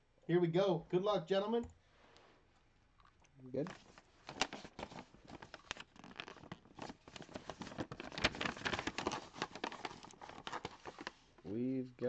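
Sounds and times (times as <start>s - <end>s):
paper rustling and crinkling: 3.6s - 11.5s
envelope tearing: 3.7s - 11.3s.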